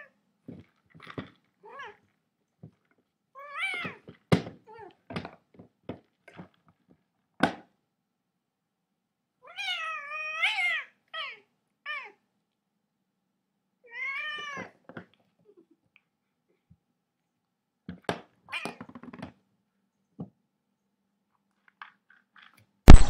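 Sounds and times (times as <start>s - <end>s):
cat meowing: 9.4s - 12.2s, 13.8s - 14.7s.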